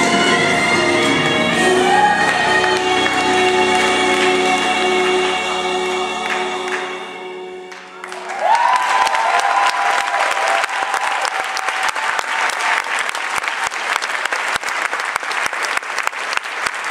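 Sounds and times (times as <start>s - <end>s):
audience applauding: 1.5s - 16.9s
audience cheering: 7.8s - 16.9s.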